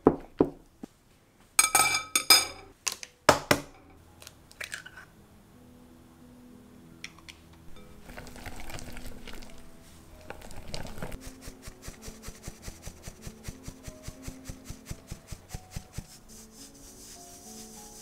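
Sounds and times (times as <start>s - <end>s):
sieve rustling: 7.8s - 18.0s.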